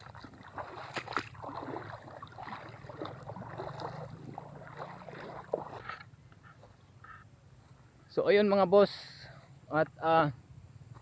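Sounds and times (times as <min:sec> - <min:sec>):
creek water trickling over rocks: 0:00.0 - 0:06.8.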